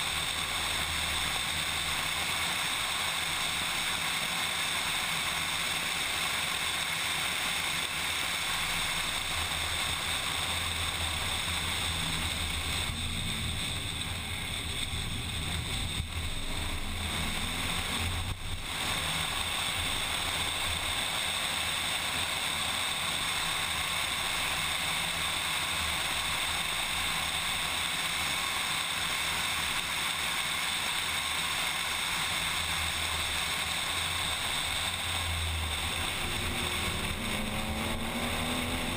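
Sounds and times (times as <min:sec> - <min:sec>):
race car engine: 0:00.0 - 0:38.9.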